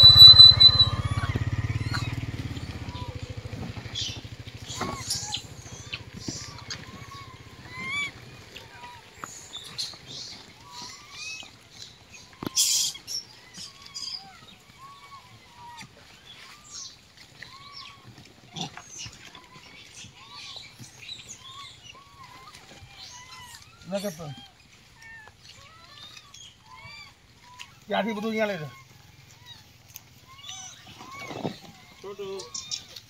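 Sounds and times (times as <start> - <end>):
motor hum: 0.0 - 8.7
chirping animal calls: 0.0 - 33.0.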